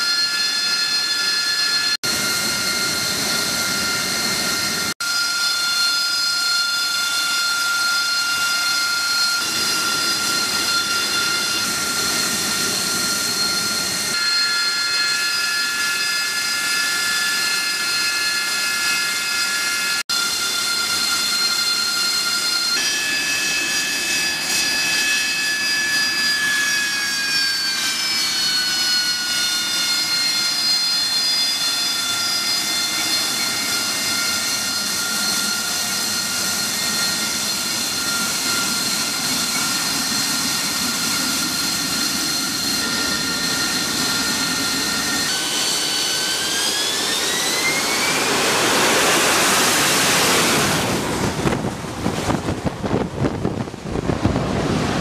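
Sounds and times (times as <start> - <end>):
jet engine whining and roaring: 0.0 - 55.0
gusty rushing noise: 46.4 - 55.0.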